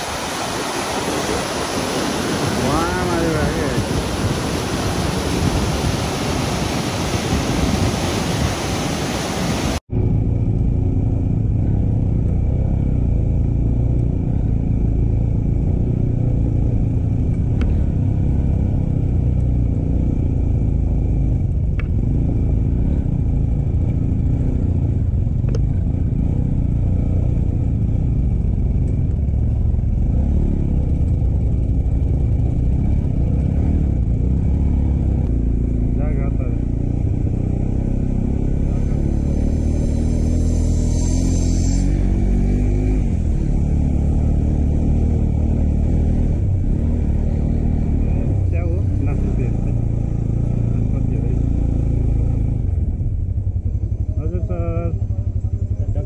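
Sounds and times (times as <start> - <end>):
loud rushing noise: 0.0 - 9.8
motorcycle engine rumbling: 0.0 - 56.0.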